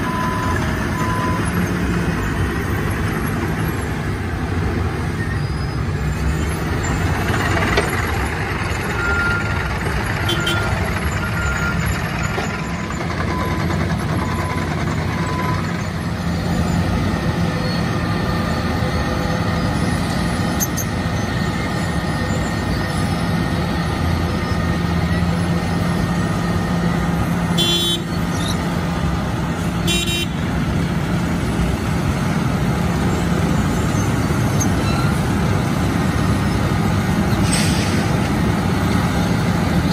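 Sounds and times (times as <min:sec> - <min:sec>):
diesel machinery running: 0:00.0 - 0:39.9.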